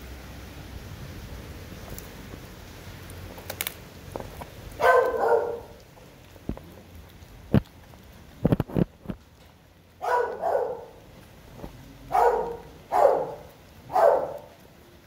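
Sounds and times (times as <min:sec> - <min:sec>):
dog barking: 0:04.8 - 0:05.8, 0:10.0 - 0:11.0, 0:12.1 - 0:14.6.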